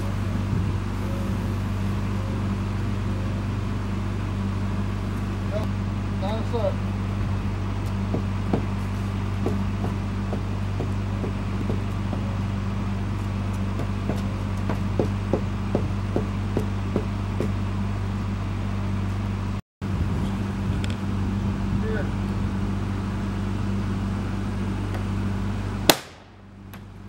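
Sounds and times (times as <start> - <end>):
low mechanical hum: 0.0 - 27.0
wooden framing knocks and taps: 9.4 - 12.3, 13.8 - 17.6.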